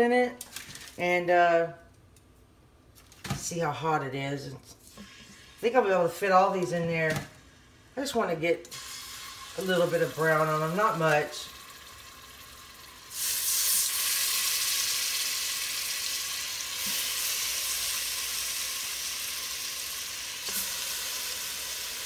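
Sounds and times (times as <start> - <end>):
meat sizzling in hot oil: 8.7 - 22.0.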